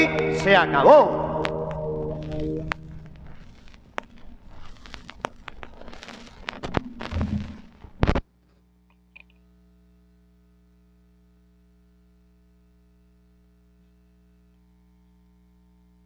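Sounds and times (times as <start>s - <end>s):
faint electrical hum: 0.0s - 16.0s
sharp clicks and crackles: 1.4s - 8.2s.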